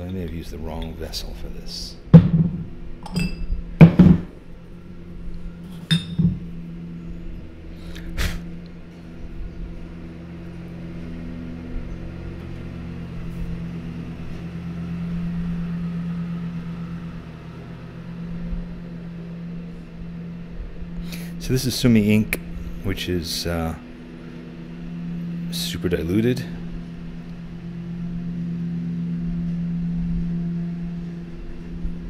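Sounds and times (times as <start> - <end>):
low room hum: 0.0 - 32.0
ink vessel clinking on table: 2.2 - 4.3, 5.7 - 6.4.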